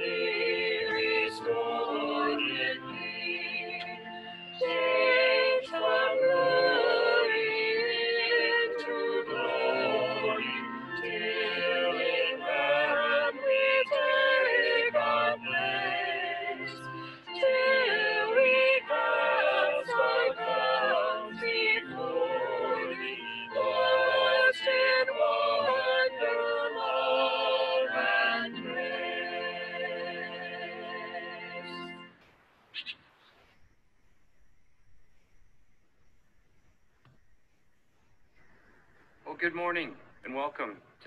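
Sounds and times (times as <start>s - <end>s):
choir singing: 0.0s - 32.0s.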